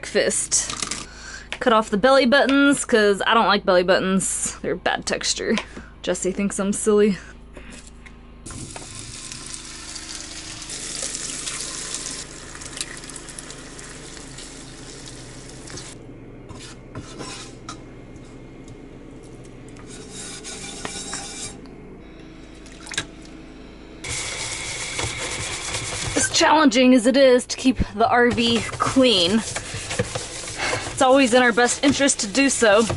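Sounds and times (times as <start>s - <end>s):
water running in a sink: 8.5s - 16.0s
food sizzling in a frying pan: 8.9s - 16.0s
spatula scraping a pan: 16.5s - 17.7s, 19.8s - 21.6s, 24.1s - 26.7s, 28.2s - 32.9s.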